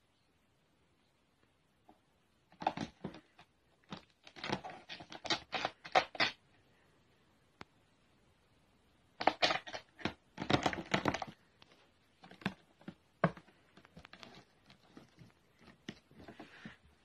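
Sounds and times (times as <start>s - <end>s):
cat scratching carpet and fabric: 2.5s - 6.4s, 9.2s - 17.0s.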